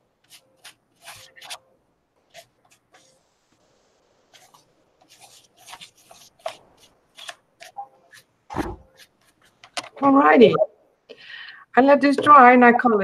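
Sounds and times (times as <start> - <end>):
pages rustling: 0.2 - 1.6, 2.2 - 9.8
paintbrush scratching on paper: 0.2 - 1.6, 2.3 - 8.3.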